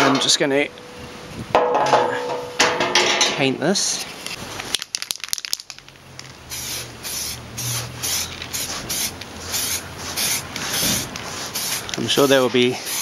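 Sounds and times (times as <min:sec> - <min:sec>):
aerosol spray paint hissing: 0:06.5 - 0:13.0.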